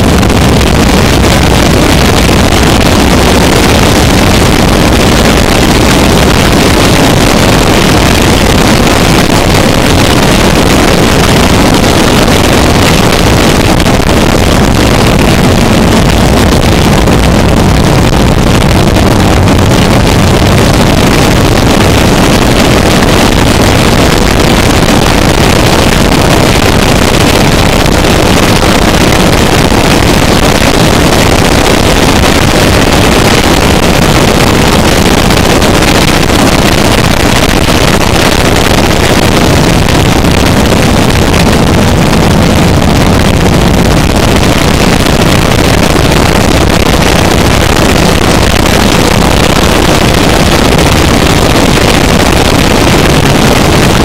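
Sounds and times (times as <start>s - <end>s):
harsh distorted noise music: 0.0s - 54.0s.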